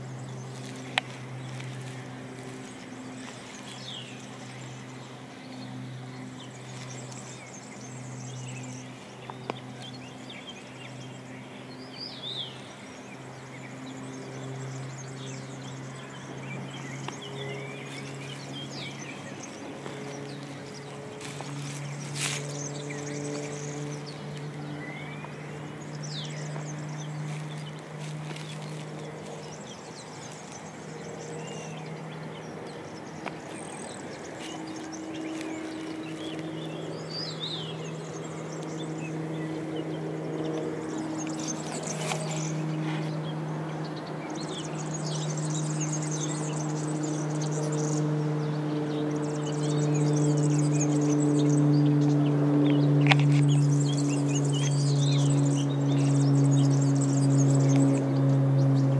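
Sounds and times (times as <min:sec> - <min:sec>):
bird chirps: 0:00.0 - 0:43.4
propeller plane engine drone: 0:00.0 - 0:58.9.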